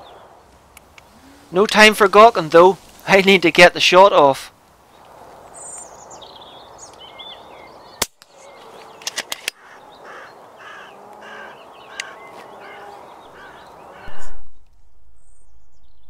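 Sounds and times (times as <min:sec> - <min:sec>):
higher bird calls: 0:05.5 - 0:14.4
crows calling: 0:08.3 - 0:14.2.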